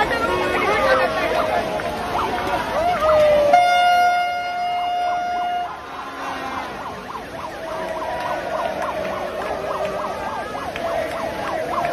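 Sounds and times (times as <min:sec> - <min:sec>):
siren yelping: 0:02.1 - 0:11.9
horn tone: 0:03.5 - 0:06.8.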